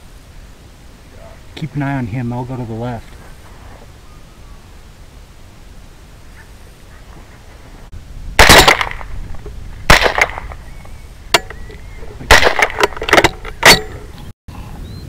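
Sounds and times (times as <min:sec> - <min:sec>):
rifle action clattering: 0:08.4 - 0:09.1, 0:09.9 - 0:10.6, 0:12.3 - 0:14.1
rifle shots: 0:08.4 - 0:09.2, 0:09.8 - 0:10.6, 0:12.3 - 0:14.0.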